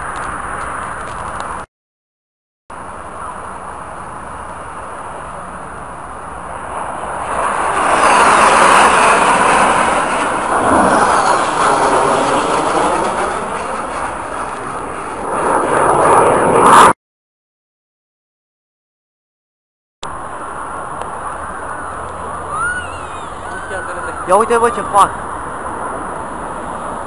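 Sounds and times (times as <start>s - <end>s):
military jet flying past: 2.8s - 17.0s, 20.1s - 27.0s.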